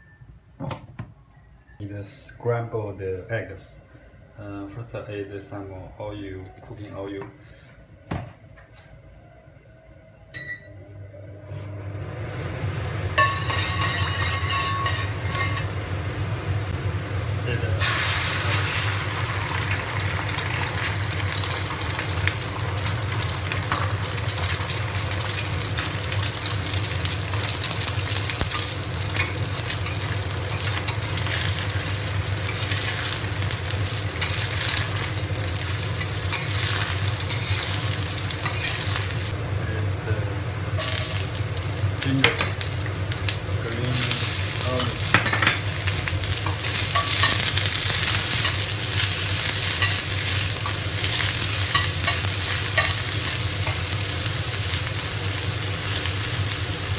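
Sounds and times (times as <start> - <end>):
eggs sizzling in oil: 13.0 - 15.8, 17.8 - 39.4, 40.8 - 56.9
metal spatula scraping wok: 13.2 - 15.8, 29.2 - 33.4, 34.0 - 39.3.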